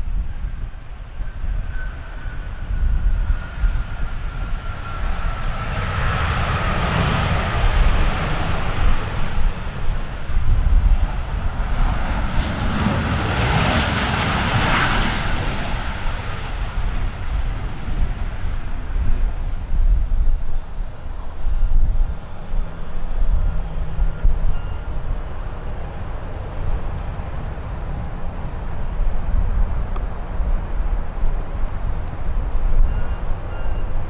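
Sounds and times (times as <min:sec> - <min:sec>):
jet engines roaring past: 0:00.0 - 0:34.0.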